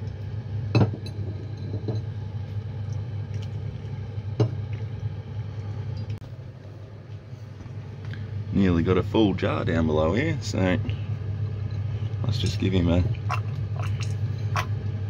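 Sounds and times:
boiling water pouring: 0.0s - 6.6s, 12.3s - 15.0s
steady low hum: 0.0s - 15.0s.

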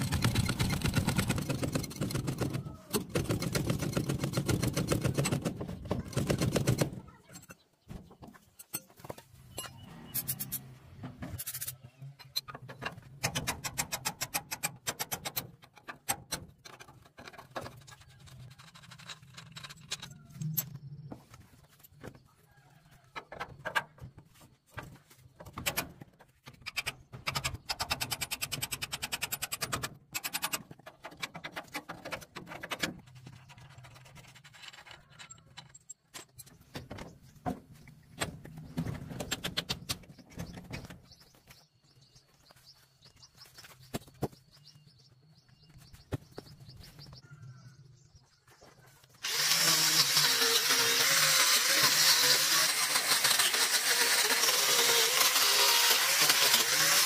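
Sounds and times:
loud rapid rattling: 0.0s - 6.9s
metal clicks scrapes and knocks: 1.4s - 20.8s, 25.4s - 41.0s.

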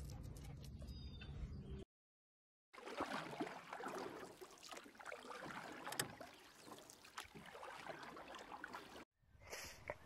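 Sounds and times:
pool water splashing and lapping: 2.7s - 9.1s.

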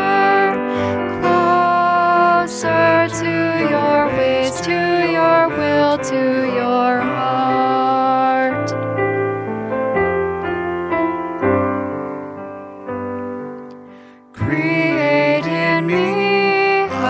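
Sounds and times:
person singing: 0.0s - 8.9s, 14.3s - 17.0s
piano accompaniment: 0.0s - 17.0s.

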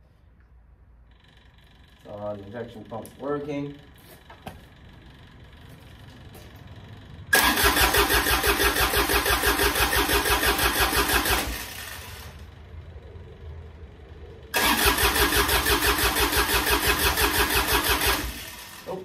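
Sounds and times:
diesel engine starter cranking: 7.3s - 12.5s, 14.5s - 19.0s.

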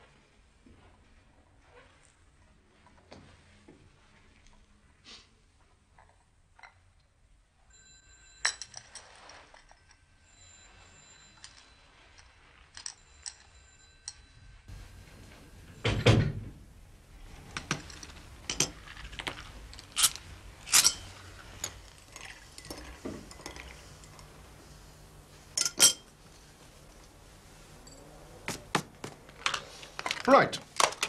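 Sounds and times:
teacups clinking on saucers: 8.3s - 10.0s, 10.7s - 16.4s, 17.3s - 28.7s.

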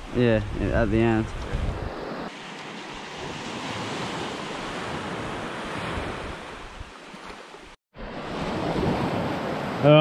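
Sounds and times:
wind noise on microphone: 0.2s - 2.2s
small waves washing onto sand: 1.0s - 10.0s.

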